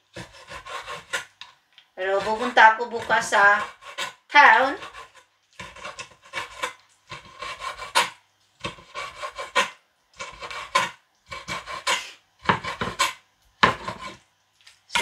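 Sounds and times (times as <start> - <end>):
cleaver chopping on wooden board: 0.1 - 1.3, 4.8 - 14.2.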